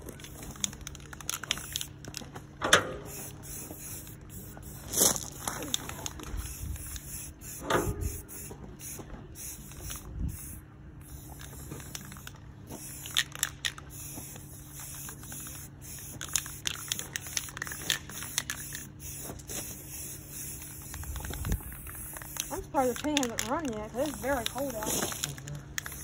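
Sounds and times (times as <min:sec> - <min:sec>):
aerosol spray can hissing: 0:06.4 - 0:26.0.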